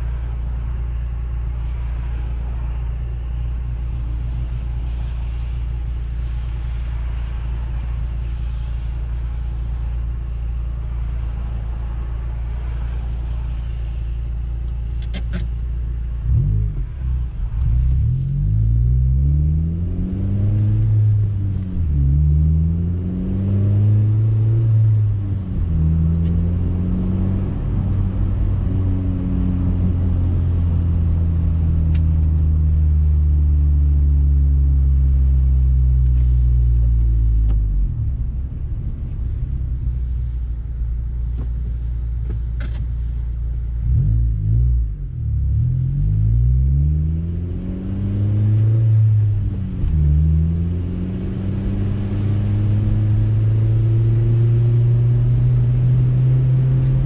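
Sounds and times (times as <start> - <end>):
car engine droning at cruise: 0.0 - 57.0
car engine revving in cabin: 9.5 - 57.0.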